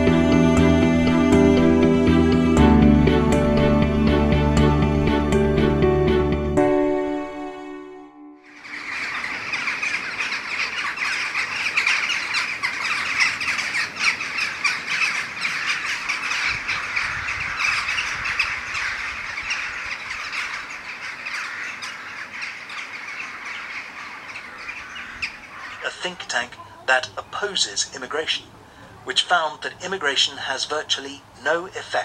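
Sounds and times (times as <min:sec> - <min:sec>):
flock of crows calling: 0:08.5 - 0:32.0.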